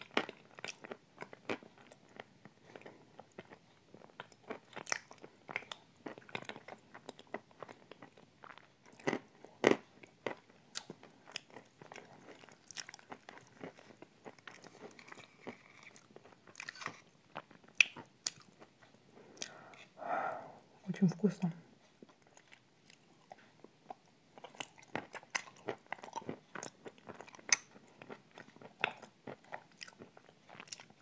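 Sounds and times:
chewing and wet mouth sounds: 0:00.0 - 0:31.0.

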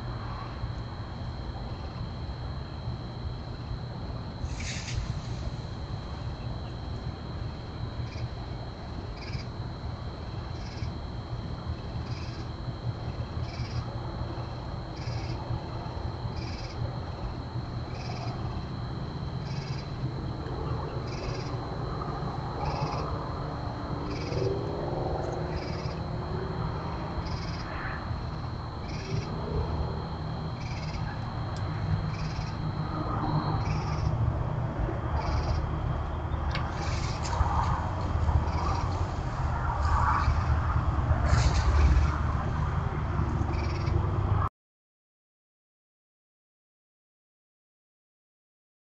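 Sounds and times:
low hum: 0:00.0 - 0:44.5
high-pitched drone: 0:14.9 - 0:44.1.

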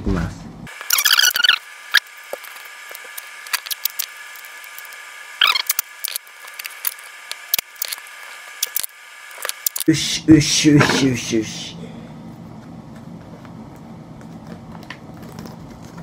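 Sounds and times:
sped-up squeaky voice: 0:00.9 - 0:01.7, 0:05.4 - 0:05.8
packing tape crackling: 0:01.9 - 0:09.9, 0:12.4 - 0:16.0.

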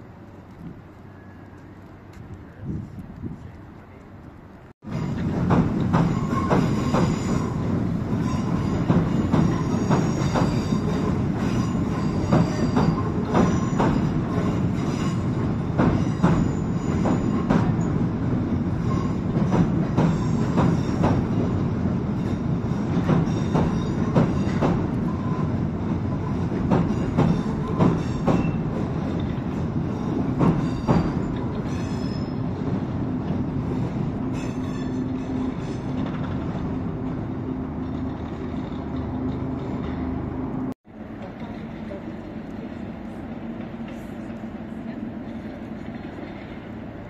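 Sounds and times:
train rumble: 0:00.0 - 0:47.0
train wheels clicking over rail joints: 0:04.9 - 0:41.8
high wheel squeal: 0:06.0 - 0:18.0, 0:18.8 - 0:25.6, 0:29.9 - 0:32.6, 0:33.7 - 0:36.4.

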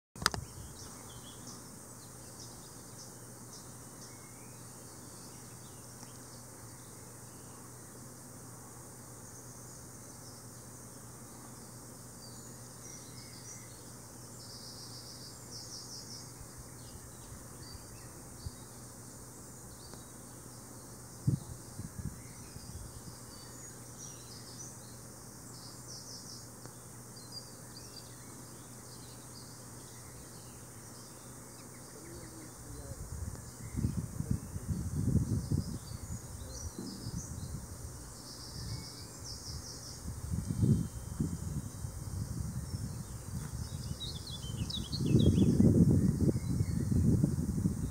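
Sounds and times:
steady background hiss: 0:00.2 - 0:47.9.

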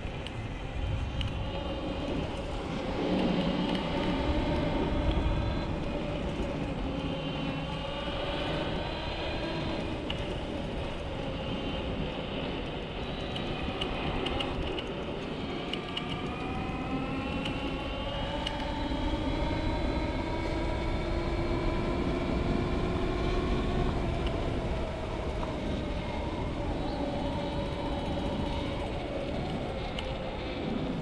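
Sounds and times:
wind rumble on microphone: 0:00.0 - 0:31.0
electric motor whine: 0:15.0 - 0:31.0.

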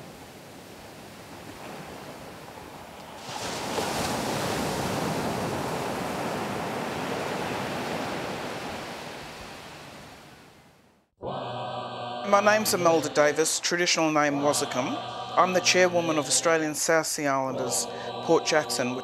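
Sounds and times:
waves washing up sand: 0:00.0 - 0:10.4.

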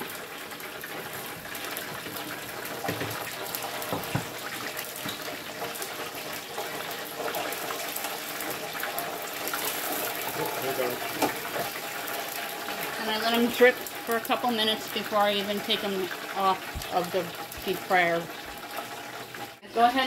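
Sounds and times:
oil sizzling in deep fryer: 0:00.0 - 0:20.0
knocks: 0:03.9 - 0:04.3.

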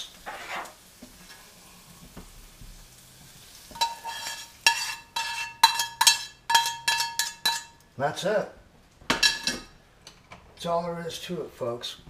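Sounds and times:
mushrooms sizzling in skillet: 0:00.0 - 0:08.0
utensil scraping and knocking pan: 0:03.7 - 0:07.8.

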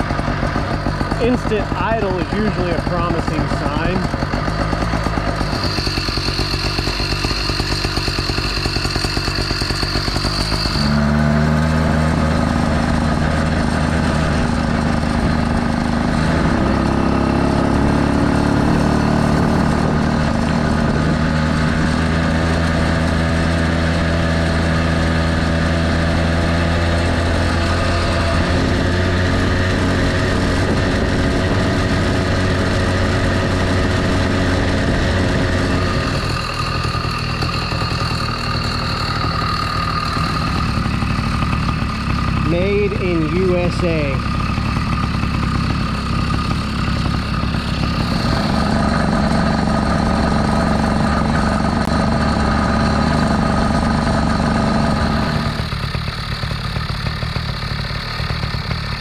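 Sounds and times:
high steady whine: 0:00.0 - 0:17.0, 0:27.5 - 0:55.8
two-stroke engine running: 0:00.0 - 0:59.0.

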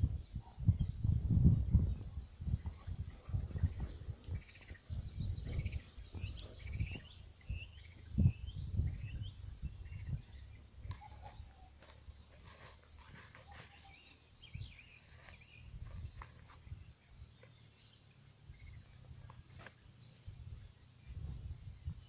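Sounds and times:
wind buffeting microphone: 0:00.0 - 0:11.5, 0:12.5 - 0:17.3, 0:18.4 - 0:22.0
small birds chirping: 0:00.0 - 0:22.0.

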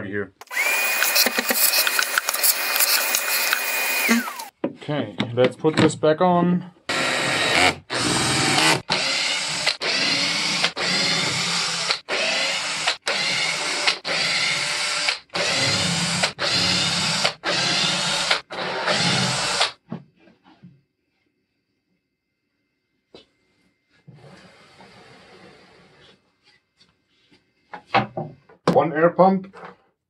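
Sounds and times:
cordless drill running: 0:00.4 - 0:04.5, 0:06.9 - 0:19.8.

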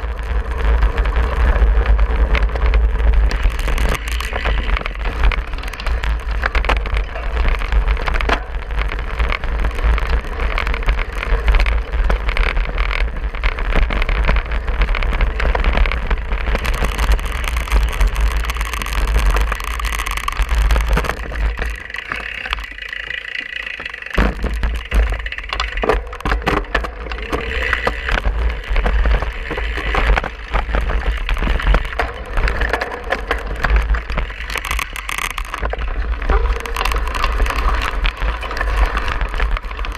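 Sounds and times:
bike rattling and knocking: 0:00.0 - 0:39.9
wind rumbling on microphone: 0:00.0 - 0:39.9.

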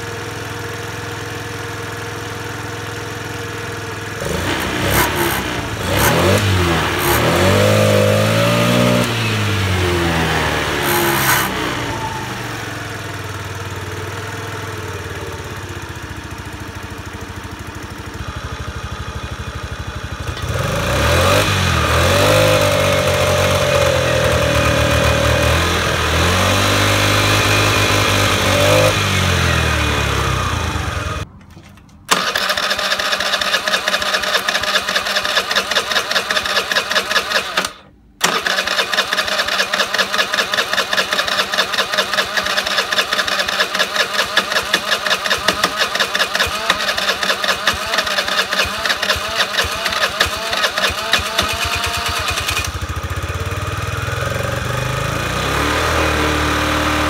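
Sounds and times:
scooter engine revving and idling: 0:00.0 - 0:57.0.

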